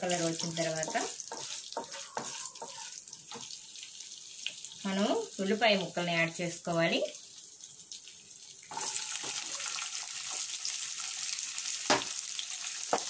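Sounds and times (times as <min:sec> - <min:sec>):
onions sizzling in hot oil: 0:00.0 - 0:13.0.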